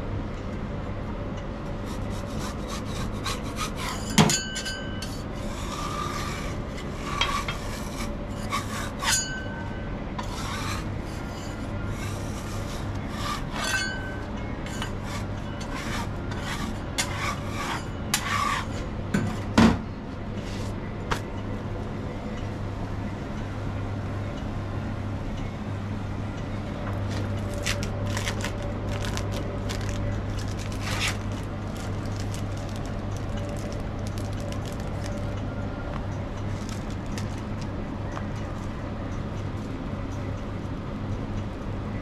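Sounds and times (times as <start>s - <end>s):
steady low hum: 0.0s - 42.0s
spatula scraping metal griddle: 2.0s - 4.3s, 5.0s - 9.3s, 10.2s - 18.8s.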